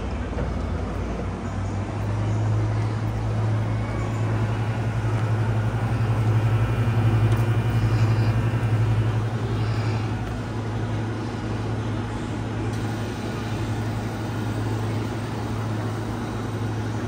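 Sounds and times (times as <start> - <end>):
vending machine fluttering hum: 0.0 - 17.0.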